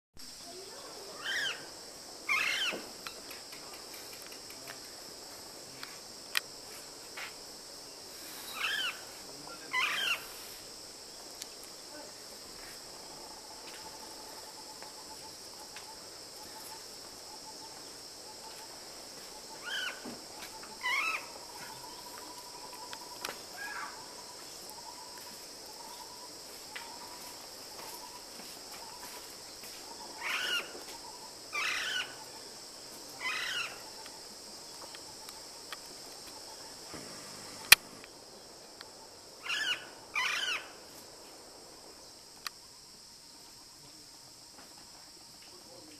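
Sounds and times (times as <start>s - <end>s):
insect buzzing: 0.2s - 44.7s
bird wavering calls: 1.2s - 1.7s, 2.3s - 2.8s, 8.5s - 9.1s, 9.7s - 10.3s, 19.4s - 24.1s, 29.9s - 32.3s, 33.2s - 34.0s, 39.4s - 40.7s.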